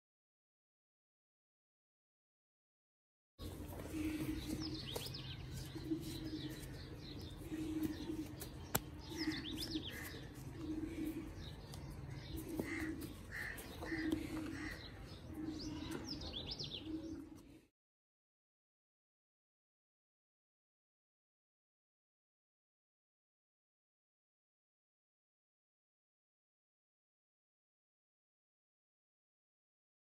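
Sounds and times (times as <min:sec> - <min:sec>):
small birds chirping: 0:03.4 - 0:17.7.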